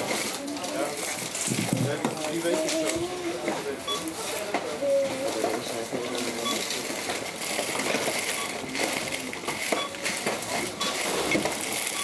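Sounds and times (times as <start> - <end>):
shop hubbub: 0.0 - 12.0
coins and goods clinking: 4.2 - 12.0.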